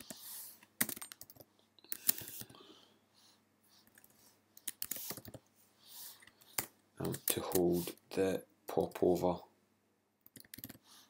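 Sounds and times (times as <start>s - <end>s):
typing on computer keyboard: 0.8s - 2.5s, 10.2s - 10.8s.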